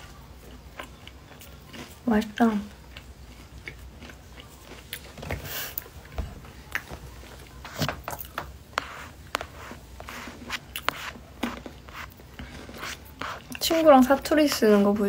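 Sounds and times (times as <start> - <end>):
chewing crunchy wafer chocolate: 0.0 - 8.4.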